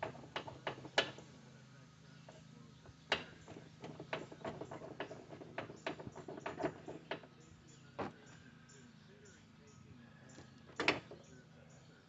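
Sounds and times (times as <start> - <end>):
hand tools clicking and knocking: 0.0 - 1.3, 3.1 - 7.3, 10.3 - 11.2
faint low hum: 0.0 - 12.0.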